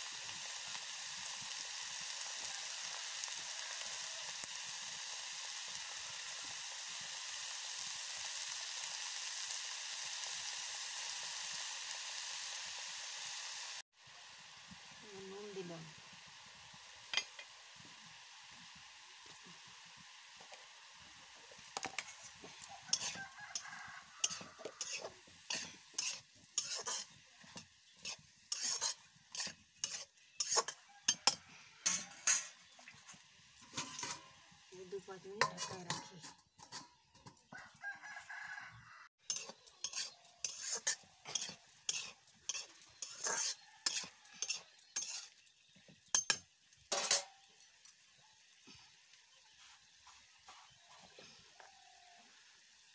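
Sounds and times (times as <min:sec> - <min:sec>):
low sizzle: 0:00.0 - 0:52.9
rooster crowing: 0:02.2 - 0:04.3, 0:22.6 - 0:25.2, 0:30.7 - 0:32.5, 0:37.5 - 0:39.1, 0:43.4 - 0:44.6, 0:51.5 - 0:52.4
spatula scraping metal pan: 0:21.8 - 0:32.7, 0:35.4 - 0:37.4, 0:39.2 - 0:45.5, 0:46.1 - 0:47.4.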